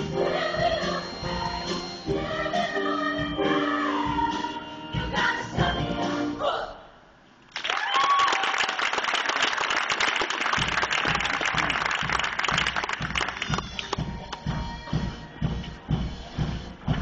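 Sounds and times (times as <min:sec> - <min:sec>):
choir singing: 0:00.0 - 0:06.9
audience applause: 0:07.5 - 0:14.0
people cheering: 0:07.6 - 0:09.4.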